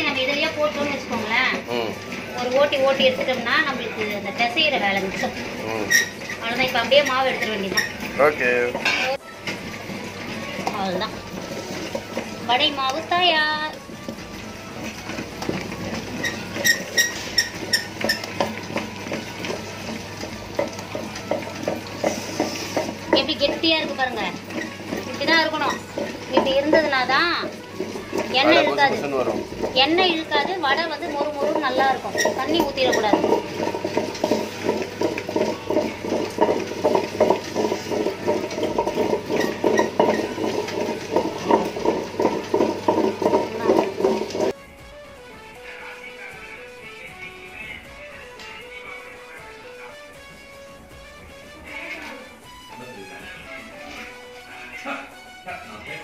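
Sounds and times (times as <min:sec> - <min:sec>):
batter stirred in steel bowl: 0:00.0 - 0:44.6
wet grinder running: 0:00.0 - 0:44.6.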